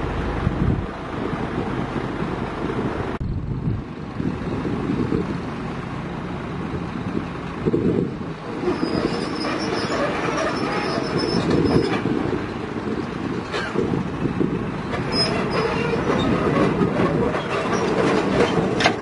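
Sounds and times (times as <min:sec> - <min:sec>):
excavator running on crawler tracks: 0:00.0 - 0:19.0
thin high squeal: 0:08.6 - 0:11.9.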